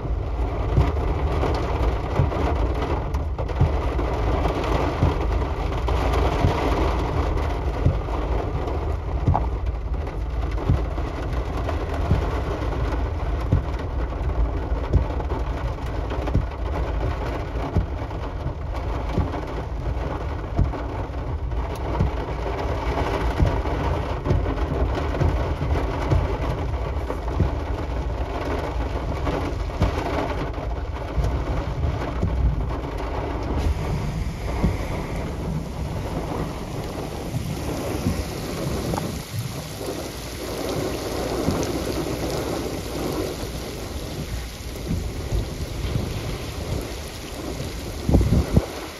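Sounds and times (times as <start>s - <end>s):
heavy rain hiss: 0.0s - 48.9s
low thunder rumble: 17.8s - 48.9s.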